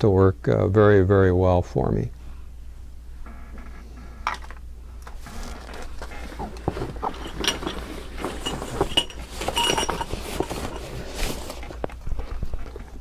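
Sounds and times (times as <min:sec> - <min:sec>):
fabric rustling: 0:05.4 - 0:12.2.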